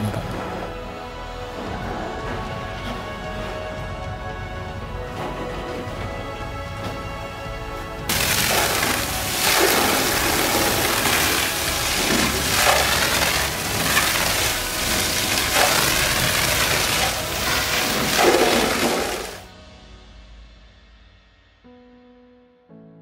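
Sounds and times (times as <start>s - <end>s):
water jet hitting metal: 8.1s - 19.5s.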